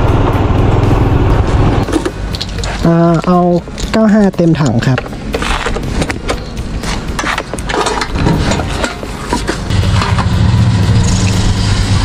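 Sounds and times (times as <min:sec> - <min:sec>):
clicks and rustling: 0:01.8 - 0:06.5
fuel pump motor humming: 0:07.6 - 0:12.0.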